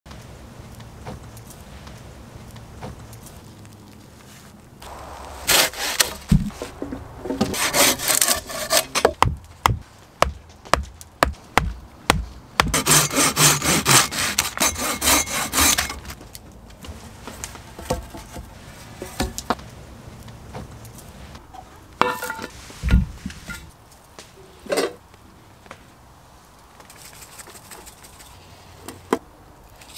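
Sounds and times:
hand saw cutting wood: 5.5s - 6.3s, 7.4s - 9.2s, 12.7s - 16.1s
sharp knocks: 9.0s - 12.8s.

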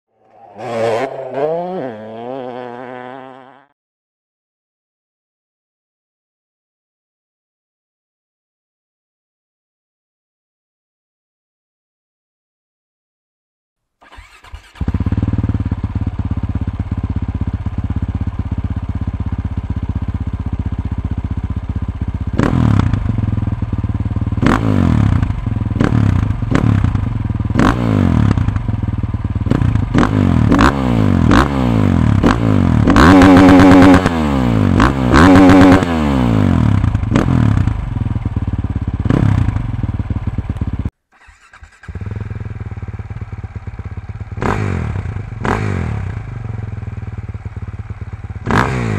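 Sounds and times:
motorcycle engine revving: 0.2s - 3.7s, 14.0s - 48.9s.

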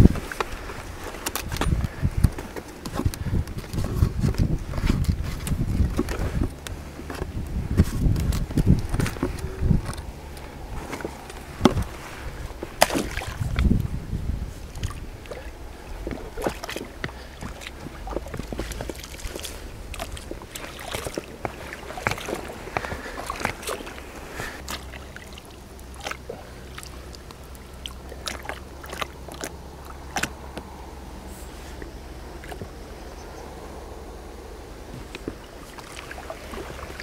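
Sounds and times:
gear clicking and rustling: 0.0s - 12.8s, 16.0s - 30.7s
wind rumble on microphone: 0.0s - 37.0s.

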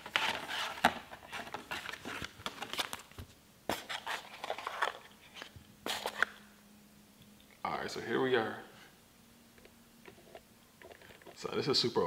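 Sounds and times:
cardboard packaging rustling: 0.0s - 6.3s.

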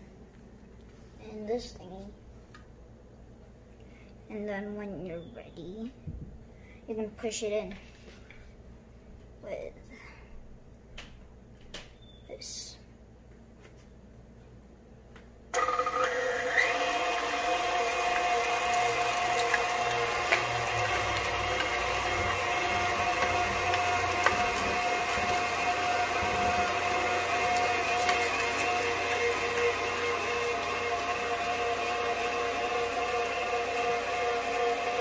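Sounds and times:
stand mixer motor whine: 15.6s - 35.0s.

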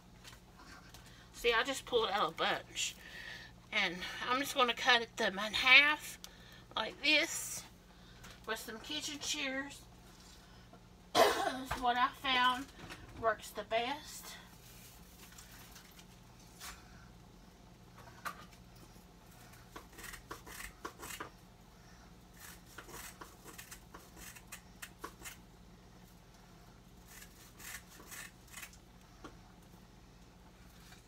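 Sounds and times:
shears snipping dry noodles: 19.7s - 21.3s, 22.4s - 25.4s, 27.0s - 28.8s.

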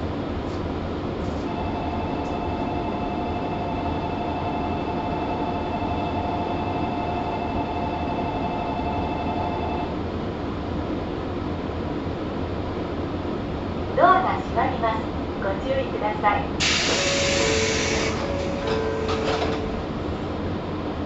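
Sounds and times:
train rumble: 0.0s - 21.0s
train motor whine: 16.6s - 20.2s.

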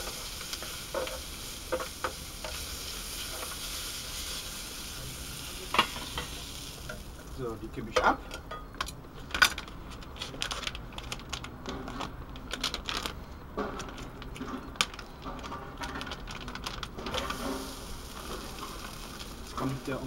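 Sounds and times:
rice sizzling in frying pan: 0.0s - 7.8s, 15.9s - 20.0s
plastic pouch crinkling and tearing: 10.2s - 13.2s, 15.8s - 19.7s.

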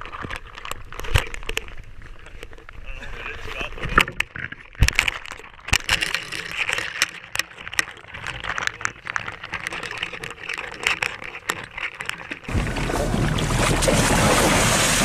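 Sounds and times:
water sloshing around camera housing: 3.7s - 15.0s.

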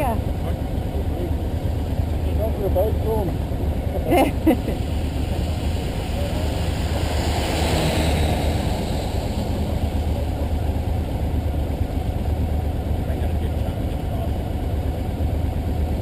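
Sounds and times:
motorcycle engine idling: 0.0s - 7.0s, 8.9s - 16.0s
wet road noise: 0.0s - 16.0s
wind: 0.0s - 16.0s
rush of higher noise: 4.6s - 11.8s.

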